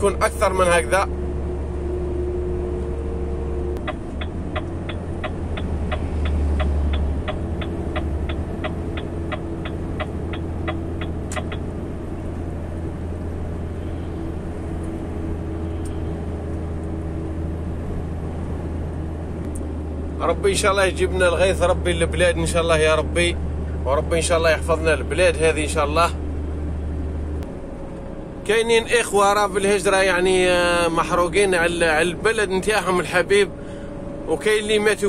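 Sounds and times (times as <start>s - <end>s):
lorry engine droning: 0.0s - 35.0s
rapid even ticking: 3.8s - 11.6s
sharp click: 3.8s - 11.6s.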